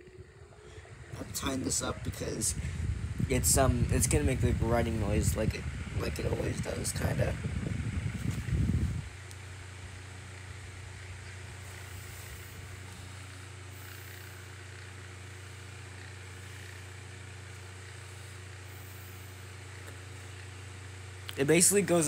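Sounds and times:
air rushing from fan blades: 0.0s - 22.0s
fan motor hum: 0.0s - 22.0s.

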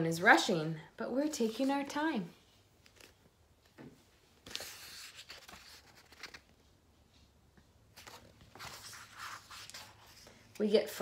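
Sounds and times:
paper pages rustling: 2.7s - 6.8s, 7.9s - 10.4s.

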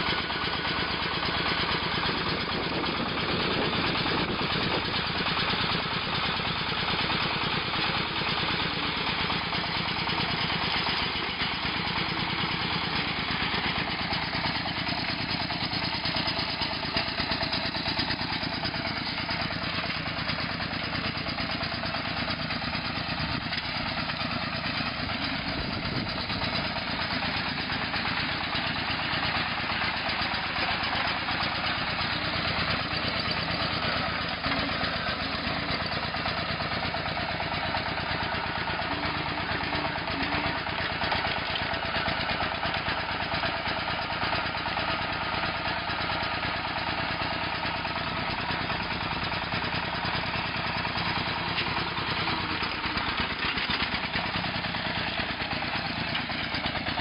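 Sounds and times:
small tractor engine running: 0.0s - 57.0s.

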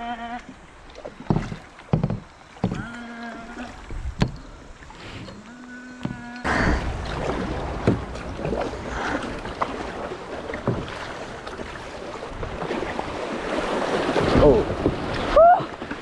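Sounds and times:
river water splashing and rushing: 0.4s - 16.0s
sharp knocks: 1.3s - 2.9s, 4.2s - 4.4s, 7.8s - 8.1s.

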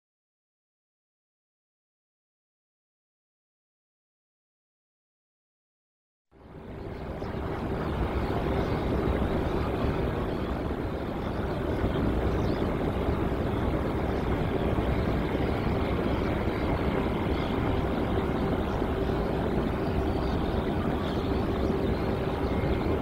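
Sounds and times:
jet engines running: 6.4s - 23.0s
steady low hum: 6.4s - 23.0s.

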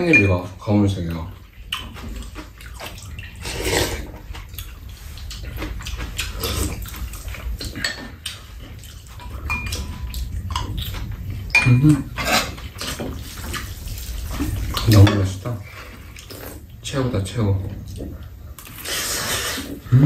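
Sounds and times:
slurp from spoon: 3.4s - 4.1s
utensils clinking against bowls: 7.6s - 13.2s.

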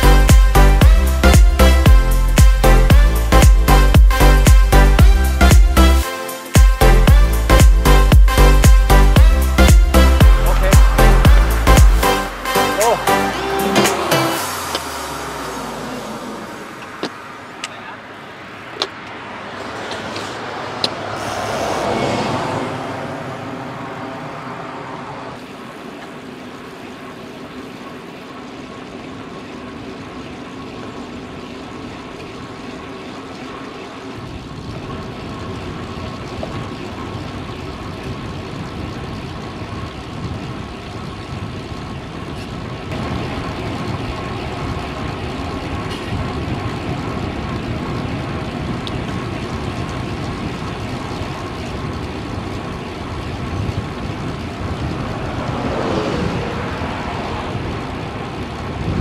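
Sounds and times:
low rumble: 0.0s - 6.0s, 6.8s - 12.6s
road noise: 0.0s - 59.0s
vehicle passing: 6.8s - 26.7s, 54.0s - 59.0s.

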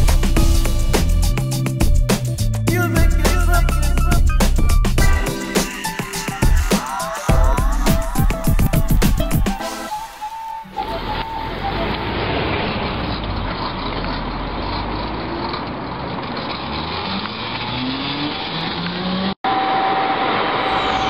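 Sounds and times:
vehicle rushing past: 10.7s - 21.0s.

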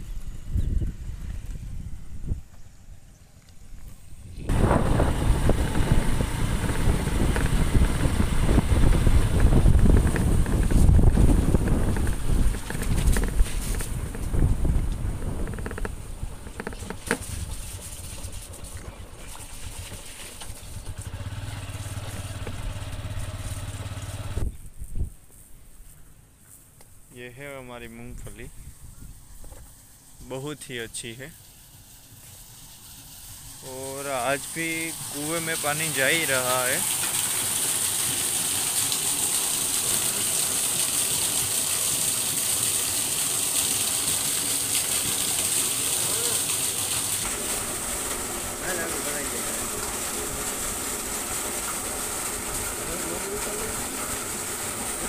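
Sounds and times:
motorcycle engine running: 0.1s - 24.6s, 46.0s - 55.0s
water pouring into a well: 4.5s - 24.3s, 29.8s - 55.0s.

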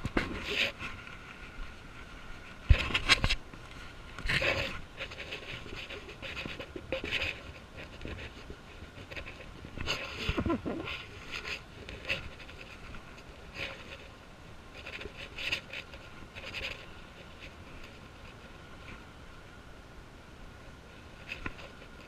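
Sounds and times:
puffs and rustles on microphone: 0.0s - 19.6s, 20.5s - 22.0s.

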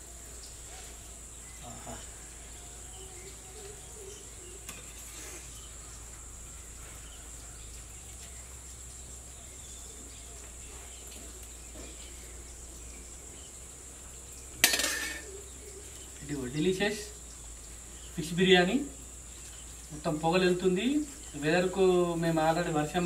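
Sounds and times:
insect chirring: 0.0s - 23.0s
metallic clang: 14.6s - 15.4s.

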